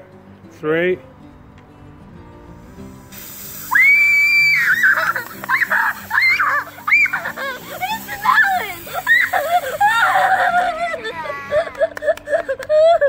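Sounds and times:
background music: 0.0 - 13.0
fizzing hiss of spraying cola: 2.4 - 12.4
girls screaming: 3.6 - 11.9.

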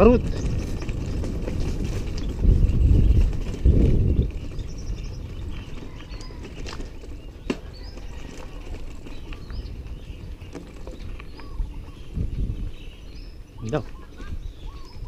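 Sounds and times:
bicycle tyres rumbling on gravel: 0.0 - 15.0
bike knocking and rattling: 0.0 - 15.0
birds chirping: 0.0 - 15.0.

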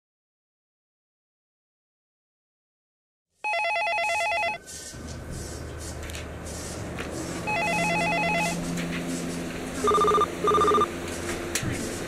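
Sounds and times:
telephone ringing with warbling trill: 3.5 - 4.6, 7.5 - 8.6, 9.8 - 10.9.

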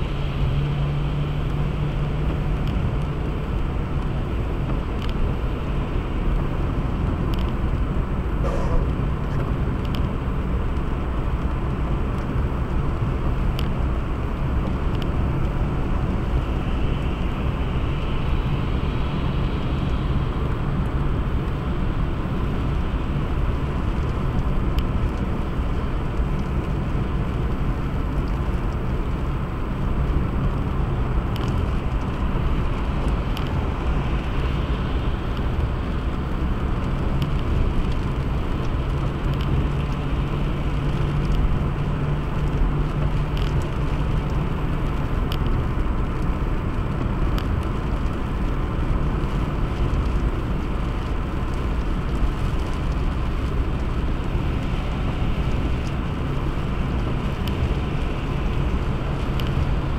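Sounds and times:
car engine rumble: 0.0 - 59.9
road hiss: 8.1 - 9.7.

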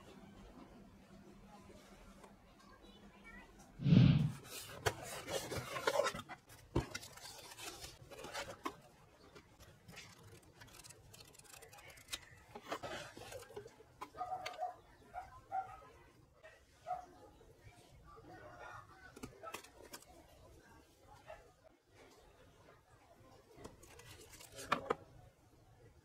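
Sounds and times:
paper and cardboard rustling: 4.3 - 13.9, 23.6 - 25.0.

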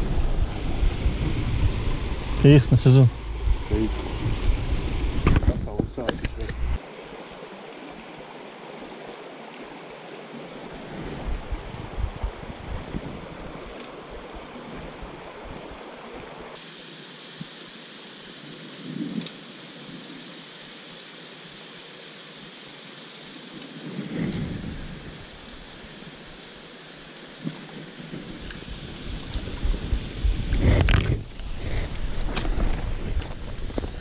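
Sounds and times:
river water rushing: 0.0 - 5.4, 6.4 - 34.0
low rumbles: 0.0 - 6.8.

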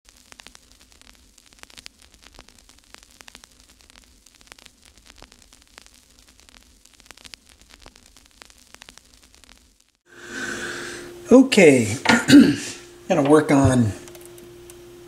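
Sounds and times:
crackling clicks: 0.1 - 10.0, 14.0 - 14.8
faint steady hum: 0.1 - 15.0
static hiss: 0.1 - 15.0.

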